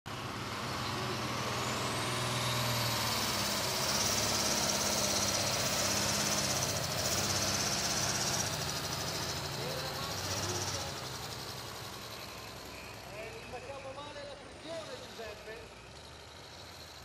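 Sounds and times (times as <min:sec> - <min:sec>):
tractor diesel engine at full throttle: 0:00.1 - 0:17.0.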